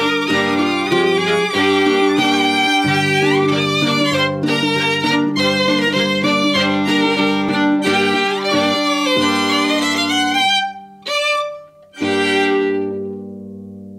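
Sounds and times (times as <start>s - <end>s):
violin playing: 0.0s - 13.4s.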